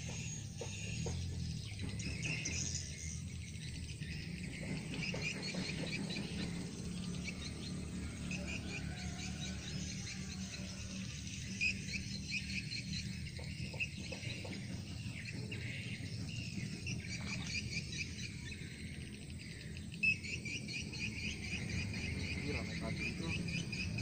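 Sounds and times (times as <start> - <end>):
insects chirping: 0.0 - 24.0.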